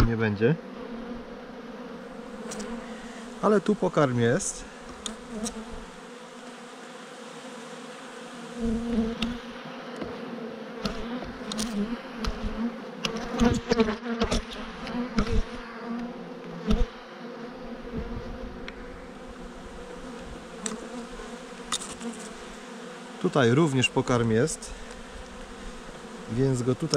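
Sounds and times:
bees buzzing: 0.0 - 26.9
hive tool knocking on wood: 8.6 - 9.4, 10.0 - 10.2, 10.8 - 16.9.

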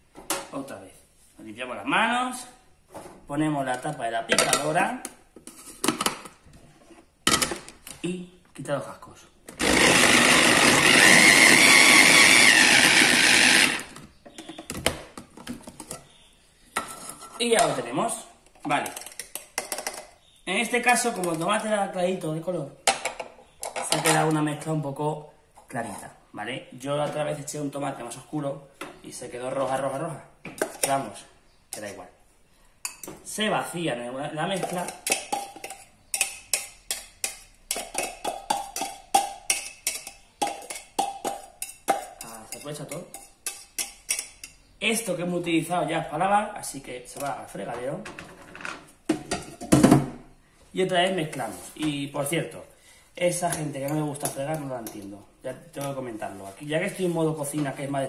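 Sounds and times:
electric food chopper whine: 9.6 - 14.0.

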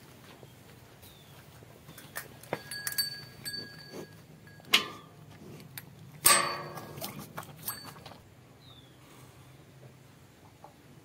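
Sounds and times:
metal bowl ringing: 2.6 - 5.2, 6.2 - 8.2
cow drinking: 2.6 - 8.3
knocks and clinks on metal bowl: 6.2 - 8.2.

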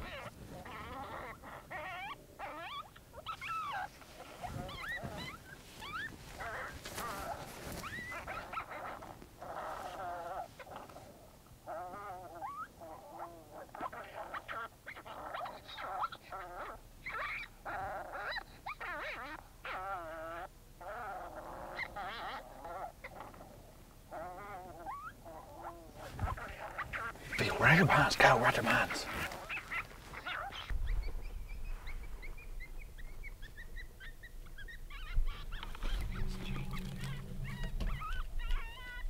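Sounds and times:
electronic animal distress cries: 34.9 - 39.0.

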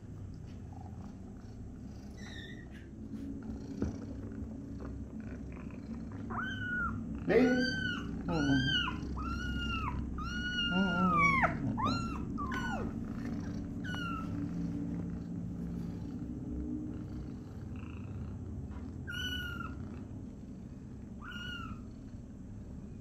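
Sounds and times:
cat purring: 0.0 - 23.0
kitten mewing: 6.3 - 14.9.

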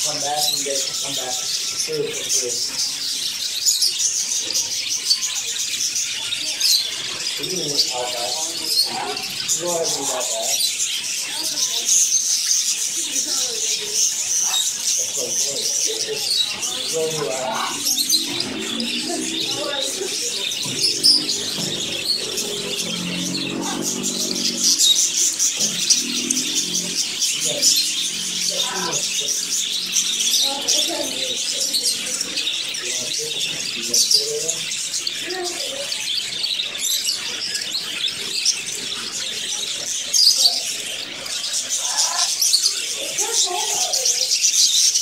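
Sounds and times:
budgerigars chirping and warbling: 0.0 - 45.0.

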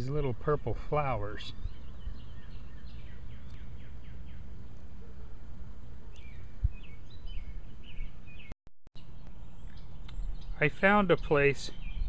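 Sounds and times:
songbird singing: 0.0 - 12.0
bird chirps: 1.4 - 4.5, 6.1 - 12.0.

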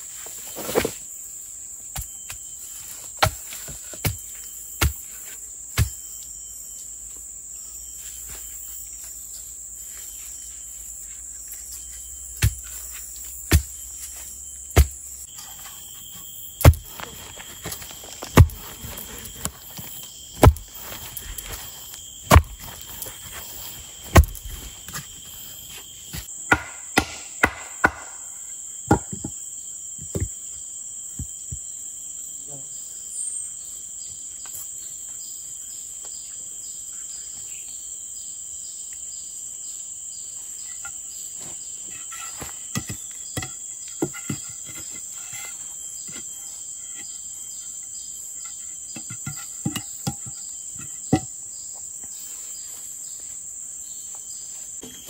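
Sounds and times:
insects chirping: 0.0 - 55.0
sharp knocks: 26.5 - 28.2.

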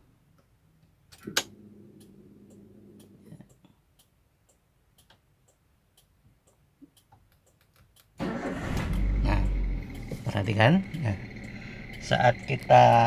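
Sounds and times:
flasher relay ticking: 1.1 - 13.0
fuel pump humming: 8.2 - 13.0.

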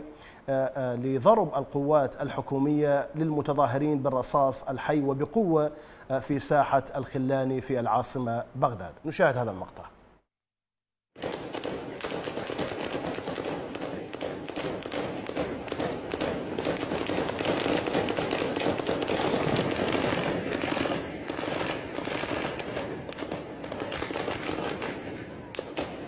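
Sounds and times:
rapid gunfire: 11.2 - 26.0.

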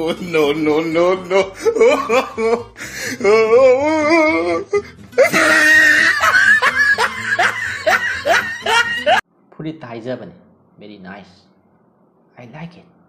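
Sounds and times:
music: 0.0 - 9.2
person laughing: 0.0 - 9.2.

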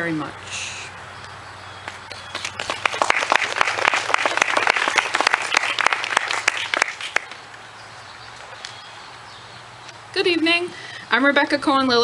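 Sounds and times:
audience applauding: 2.3 - 7.3.

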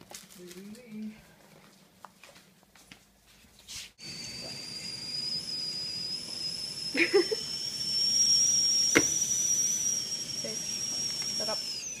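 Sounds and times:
kettle whistling: 4.0 - 12.0
steam hissing: 4.0 - 12.0.

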